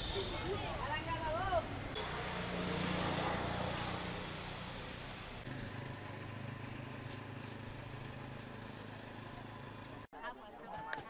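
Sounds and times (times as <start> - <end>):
wind: 0.0 - 11.0
motorboat engine humming: 1.7 - 10.1.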